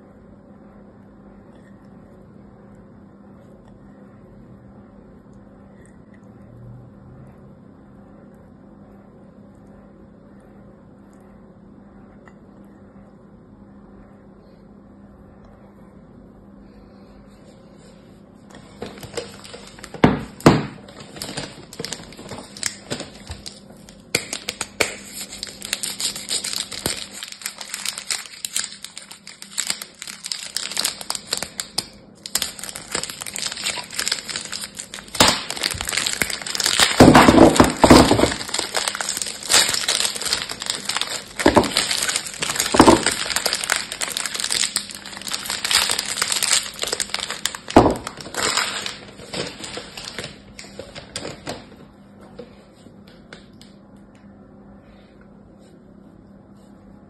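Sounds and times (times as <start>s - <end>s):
plastic wrap crinkling: 18.5s - 51.8s.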